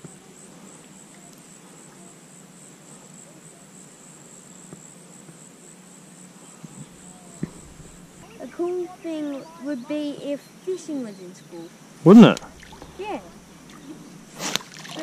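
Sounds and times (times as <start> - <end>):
insect trilling: 6.7 - 15.0.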